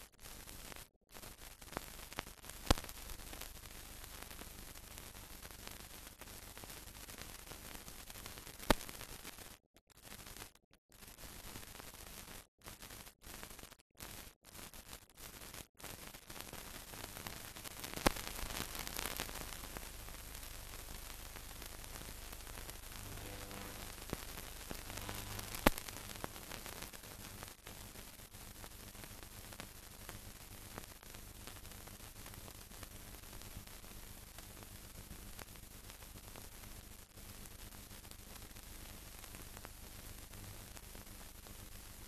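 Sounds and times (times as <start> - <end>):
film soundtrack hiss: 17.0 - 42.0.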